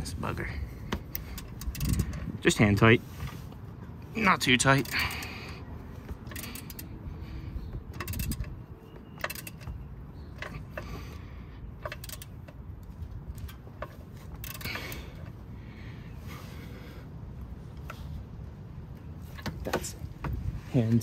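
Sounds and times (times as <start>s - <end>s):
ratchet wrench clicking: 1.0s - 3.4s, 4.3s - 15.4s.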